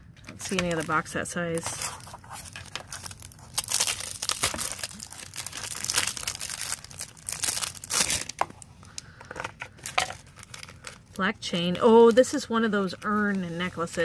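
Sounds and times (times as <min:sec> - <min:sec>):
plastic wrapper crinkling: 0:00.2 - 0:11.3.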